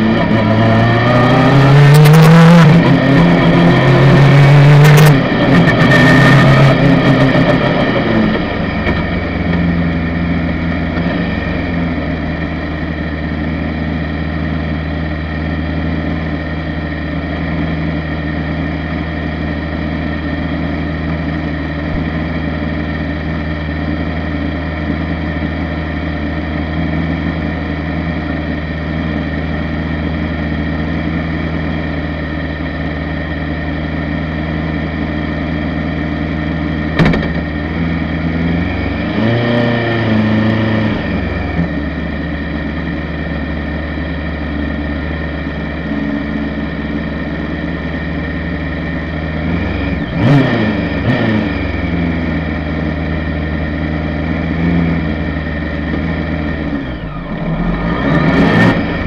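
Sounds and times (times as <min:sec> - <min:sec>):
engine revving: 0:00.0 - 0:14.1, 0:32.6 - 0:59.0
race car engine idling: 0:05.2 - 0:39.0, 0:41.0 - 0:50.2, 0:50.8 - 0:57.9.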